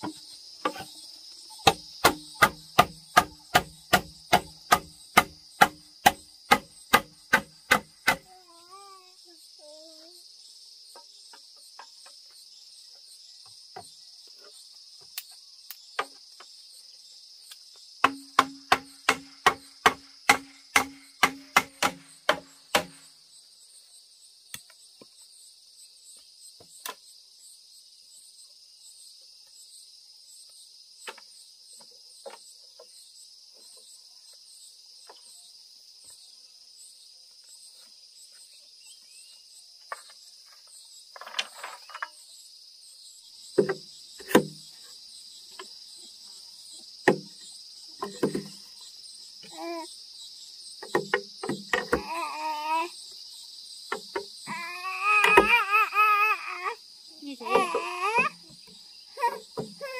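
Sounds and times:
insects droning: 0:00.0 - 0:59.9
sharp ringing knocks: 0:18.0 - 0:23.0.

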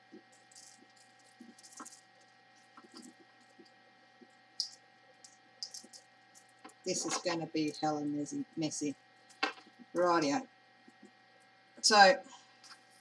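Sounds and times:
plastic bag rustling: 0:00.1 - 0:03.7
light ticks of beads landing: 0:04.6 - 0:06.8.

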